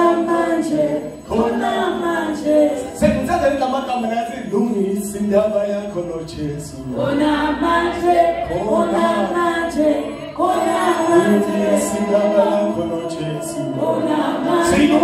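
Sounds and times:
unaccompanied gospel chorus: 0.0s - 15.0s.

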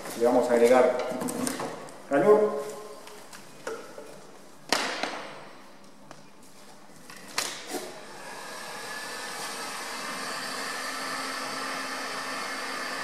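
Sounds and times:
heat gun fan whining: 7.4s - 13.0s.

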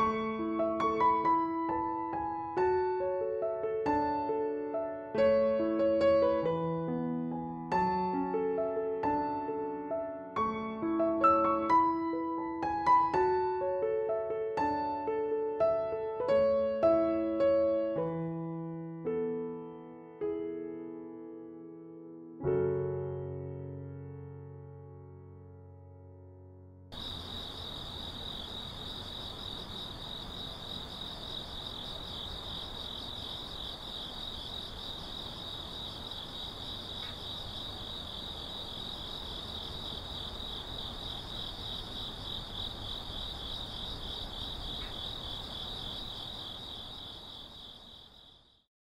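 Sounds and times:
crickets chirping: 26.9s - 48.7s.

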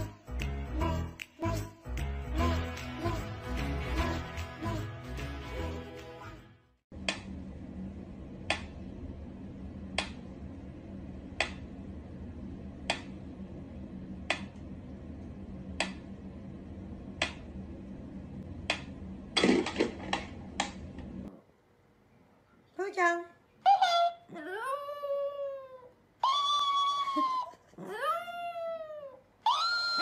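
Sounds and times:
steady low hum: 6.9s - 22.7s.

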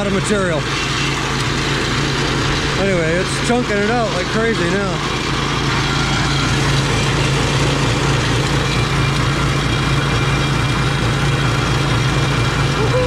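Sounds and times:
engine pulsing: 0.0s - 13.0s
jaw crusher running: 0.0s - 13.0s.

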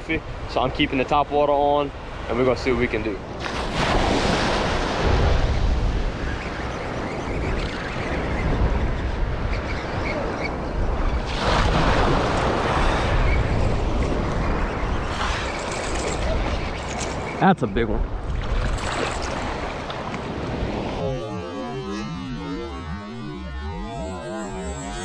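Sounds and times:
wind rumbling on microphone: 3.7s - 17.4s.

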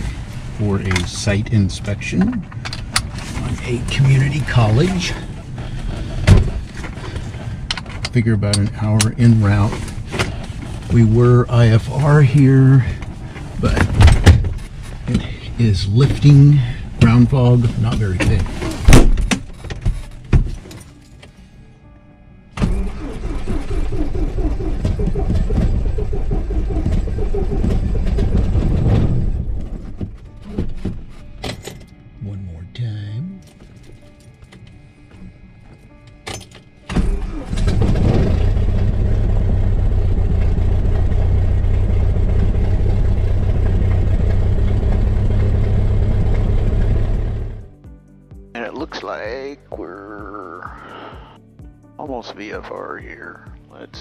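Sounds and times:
thump: 18.3s - 20.6s
propeller engine drone: 22.9s - 30.4s, 37.1s - 47.7s.

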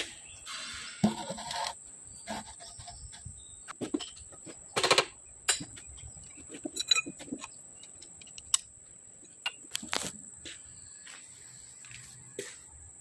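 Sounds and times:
metal tools clinking on lathe: 5.5s - 8.6s.

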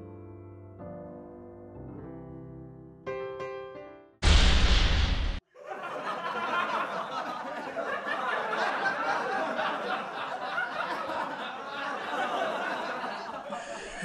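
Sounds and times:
loud burst of noise: 4.2s - 5.4s
crowd laughing: 5.5s - 14.0s.

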